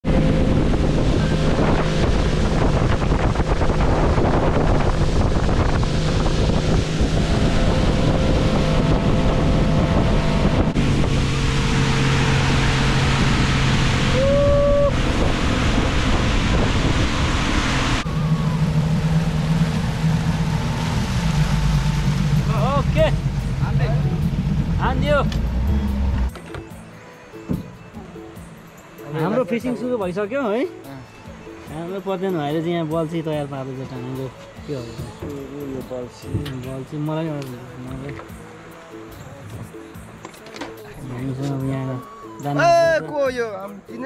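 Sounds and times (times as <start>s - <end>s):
heavy wind: 0.0s - 26.3s
water rushing: 0.0s - 43.5s.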